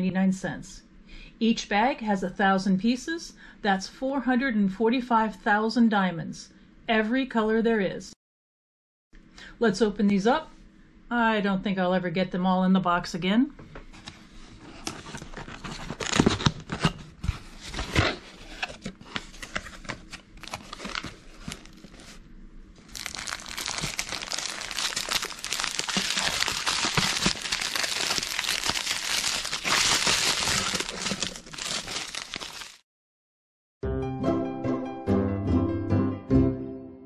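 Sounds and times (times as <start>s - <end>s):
cardboard box being opened: 14.8s - 22.2s, 22.9s - 32.8s
cardboard flaps rustling: 14.8s - 22.2s, 22.9s - 32.8s
plastic bags crinkling: 19.3s - 22.2s, 22.8s - 32.8s.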